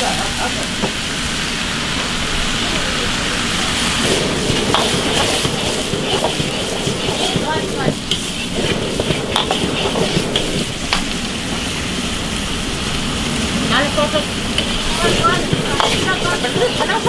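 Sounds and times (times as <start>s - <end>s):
food sizzling in a wok: 0.0s - 17.0s
utensil clinking and scraping wok: 3.4s - 11.8s, 13.1s - 17.0s.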